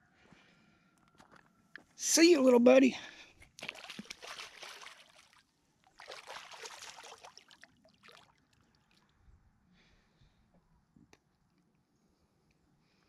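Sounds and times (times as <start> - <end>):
shallow water splashing: 3.4 - 9.1.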